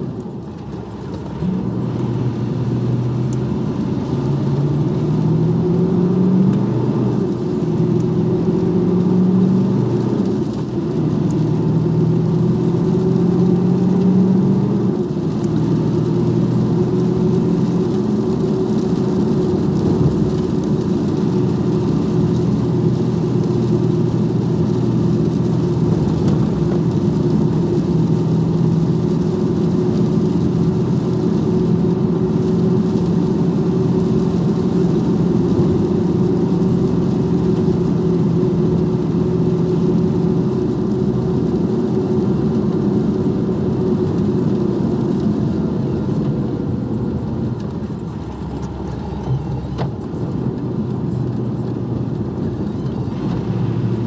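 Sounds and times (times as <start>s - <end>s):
truck diesel engine droning: 0.0s - 54.0s.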